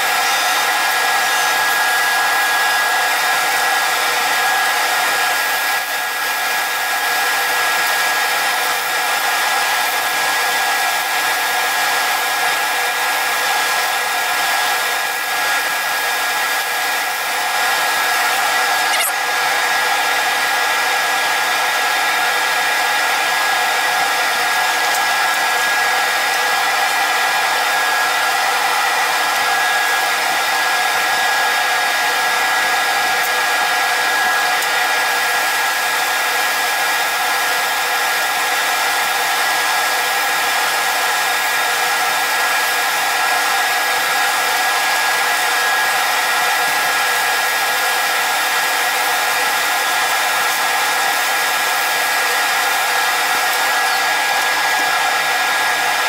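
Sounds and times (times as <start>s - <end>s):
steady high tone: 0.0s - 2.7s
wood lathe whirring: 0.0s - 38.2s.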